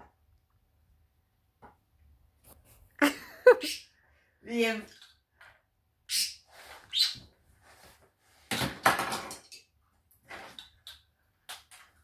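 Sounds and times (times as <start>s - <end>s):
budgerigar chirping: 6.1s - 7.2s.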